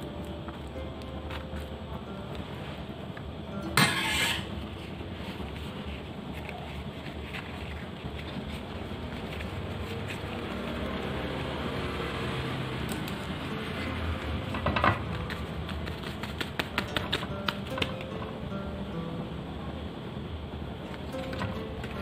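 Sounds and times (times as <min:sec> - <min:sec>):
steady background hum: 0:00.0 - 0:22.0
leaf crackling and rustling: 0:04.6 - 0:13.9, 0:15.1 - 0:17.6.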